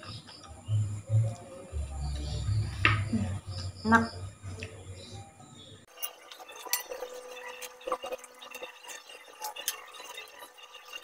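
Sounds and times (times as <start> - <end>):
light liquid sounds: 5.9 - 11.0.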